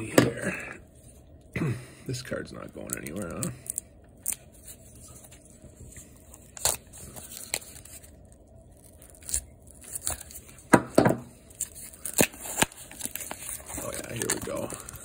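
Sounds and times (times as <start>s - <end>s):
knife slicing packing tape: 11.6s - 13.3s
paper rustling: 11.6s - 15.0s.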